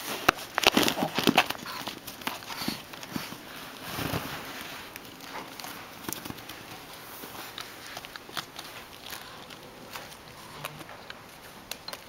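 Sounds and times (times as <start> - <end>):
plastic tube rustling: 0.0 - 12.0.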